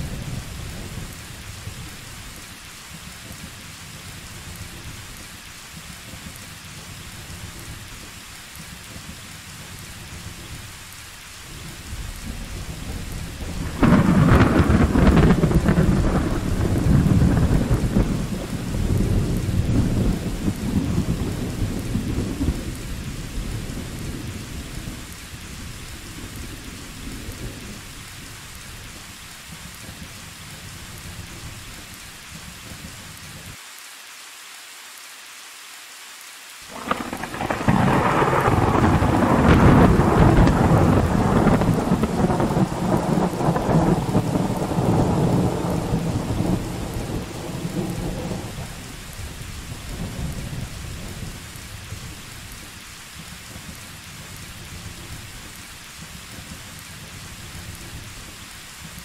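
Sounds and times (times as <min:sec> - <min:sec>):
thunder rumble: 0:00.0 - 0:08.0, 0:11.5 - 0:33.0, 0:36.7 - 0:52.8
steady rain: 0:00.0 - 0:59.0
loud thunderclap: 0:12.0 - 0:25.1, 0:36.7 - 0:51.5.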